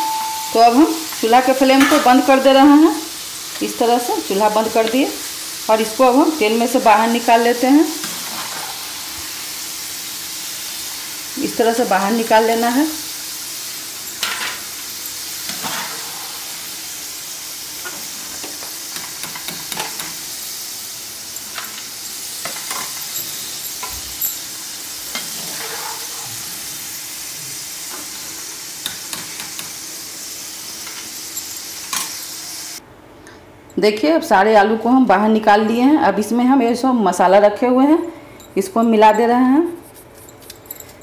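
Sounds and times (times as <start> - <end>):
fries sizzling in hot oil: 0.0 - 32.8
metal spatula clinking and scraping: 14.1 - 16.4, 21.3 - 24.5, 25.1 - 26.2, 39.9 - 41.0.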